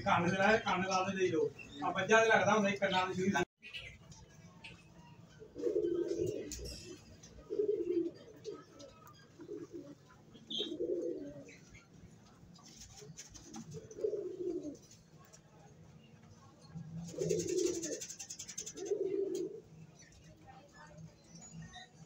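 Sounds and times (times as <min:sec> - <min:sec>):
pigeons cooing: 0:05.4 - 0:15.1, 0:16.9 - 0:19.9.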